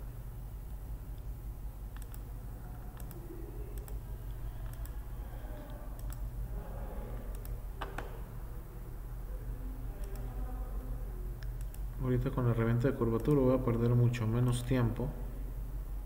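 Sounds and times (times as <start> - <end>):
steady low hum: 0.0 - 16.0
computer mouse clicking: 1.9 - 2.3, 2.9 - 5.0, 5.6 - 6.3, 7.2 - 8.2, 10.0 - 10.3, 11.4 - 11.9, 13.2 - 13.4.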